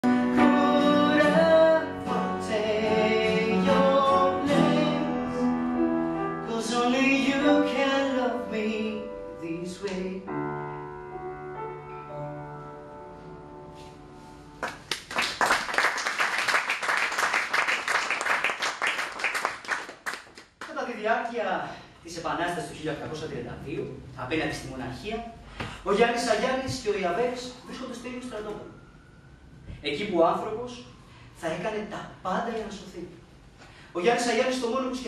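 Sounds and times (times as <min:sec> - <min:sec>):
singing with guitar and piano: 0:00.0 - 0:10.5
audience applause: 0:14.6 - 0:20.5.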